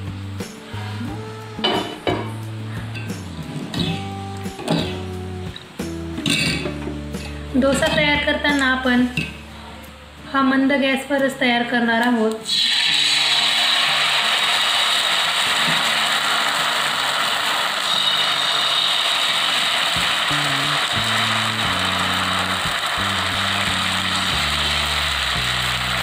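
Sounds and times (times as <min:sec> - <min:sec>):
background music: 0:00.0 - 0:26.0
batter sizzling on griddle: 0:12.5 - 0:26.0.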